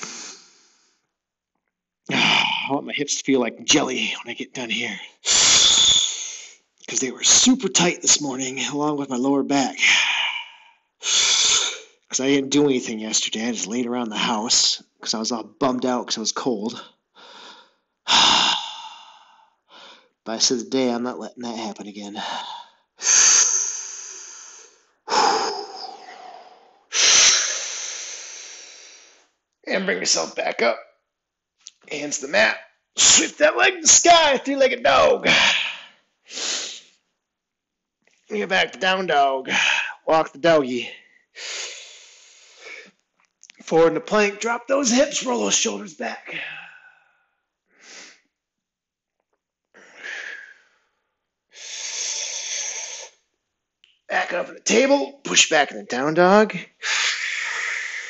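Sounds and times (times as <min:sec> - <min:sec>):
man breathing deeply: 0:00.0 - 0:01.0, 0:17.2 - 0:20.2, 0:22.2 - 0:29.2, 0:41.0 - 0:42.9, 0:49.8 - 0:53.2, 0:56.8 - 0:58.0.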